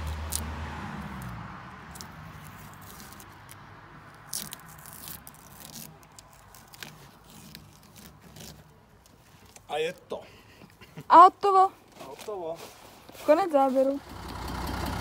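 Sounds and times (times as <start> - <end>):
masking tape scratching: 1.9 - 9.6.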